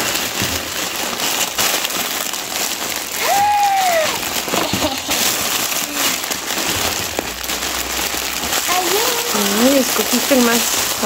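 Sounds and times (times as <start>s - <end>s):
plastic bag crinkling: 0.0s - 11.0s
short high vocal call: 3.2s - 4.2s.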